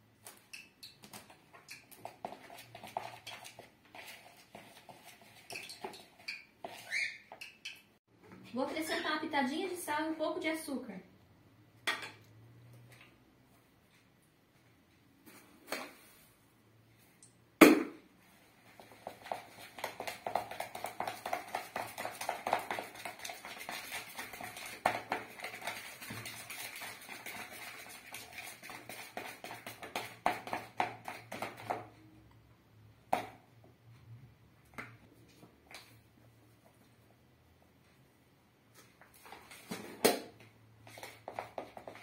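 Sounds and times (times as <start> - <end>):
batter beaten in plastic bowl: 0.2 - 6.9, 18.6 - 32.0, 40.8 - 42.0.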